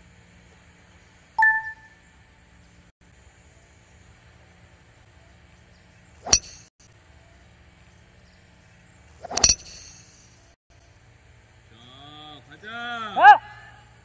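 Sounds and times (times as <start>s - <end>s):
golf club striking ball: 6.2s - 6.7s, 9.2s - 10.3s.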